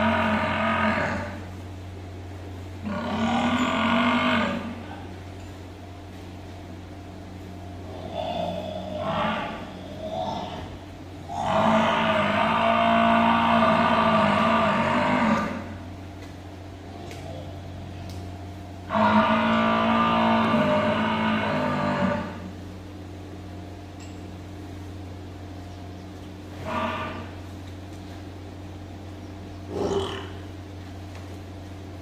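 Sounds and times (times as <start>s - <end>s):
water buffalo mooing: 0.0s - 1.6s, 2.8s - 5.1s, 7.8s - 15.8s, 18.8s - 22.6s, 26.6s - 27.5s, 29.7s - 30.5s.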